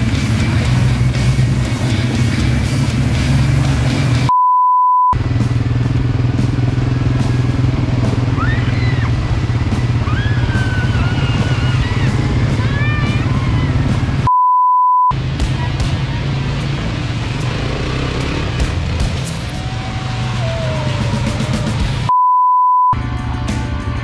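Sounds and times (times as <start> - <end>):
atv engines running: 0.0 - 4.3, 5.2 - 14.3, 15.1 - 22.1
flat high-pitched beep: 4.3 - 5.2, 14.3 - 15.1, 22.1 - 23.0.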